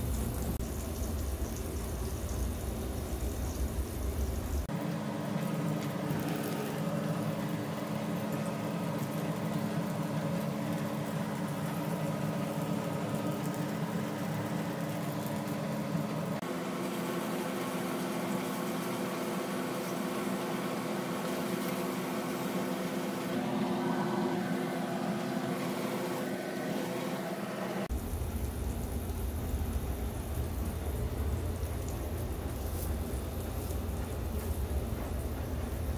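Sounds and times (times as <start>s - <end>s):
patty sizzling in frying pan: 0.0s - 16.4s, 27.9s - 35.9s
electrical hum: 0.0s - 35.9s.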